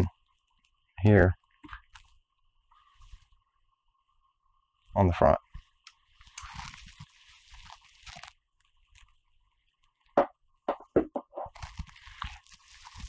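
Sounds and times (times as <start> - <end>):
clicks and knocks on wooden table: 10.2 - 11.5.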